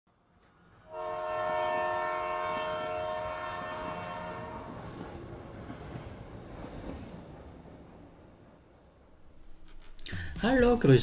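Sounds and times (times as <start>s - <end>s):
passing train rushing: 0.1s - 11.0s
train horn chord: 0.8s - 4.9s.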